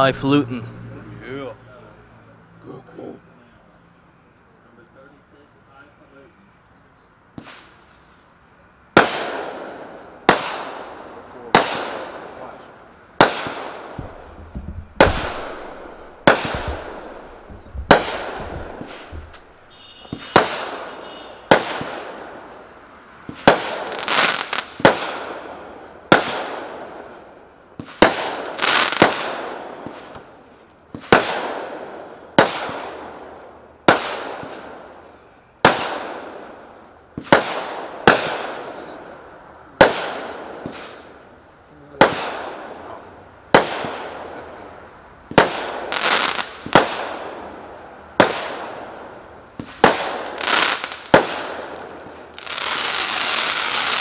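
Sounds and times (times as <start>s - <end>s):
firework cake bangs: 13.2s - 22.2s, 49.6s - 52.2s.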